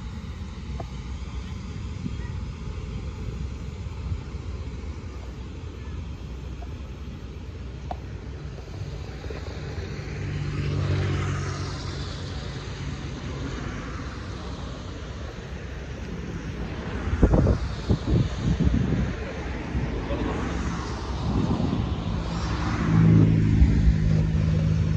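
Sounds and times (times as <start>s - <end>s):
jet engines whining: 0.0s - 24.9s
wind buffeting microphone: 11.9s - 24.9s.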